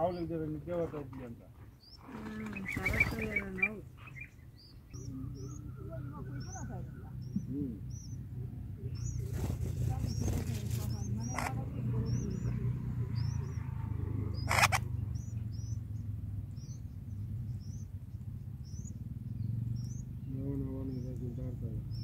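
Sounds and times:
nestlings cheeping: 1.8 - 8.2, 8.9 - 13.7, 14.4 - 18.0.

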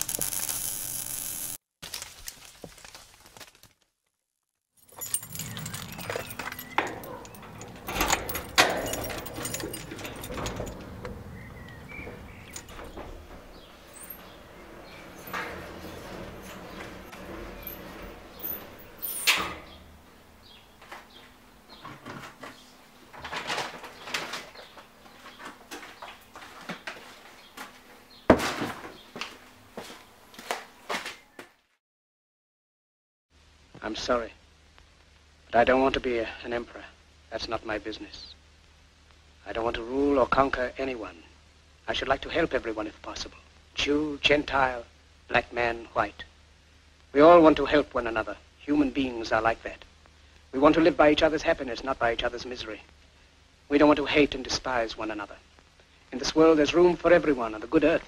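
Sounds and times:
plastic bag crinkling: 1.8 - 3.9
keys jangling: 4.8 - 19.8
lock clicking: 4.9 - 19.9.

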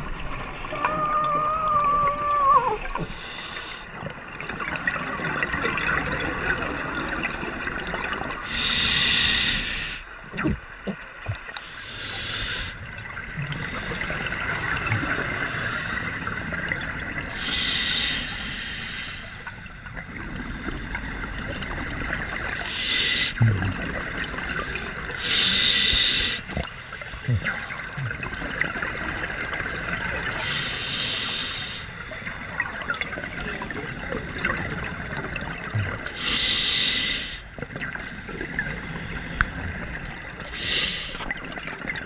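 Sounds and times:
bubbling hiss: 8.1 - 16.7, 17.3 - 28.3, 29.8 - 41.8.

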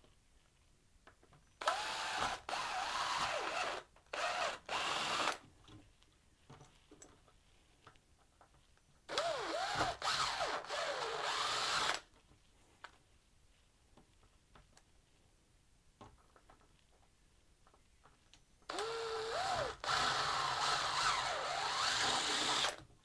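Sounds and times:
cordless drill whining: 1.6 - 5.4, 9.1 - 12.0, 18.7 - 22.8
drill bit cutting plastic bucket: 1.6 - 5.4, 9.1 - 12.0, 18.7 - 22.8.

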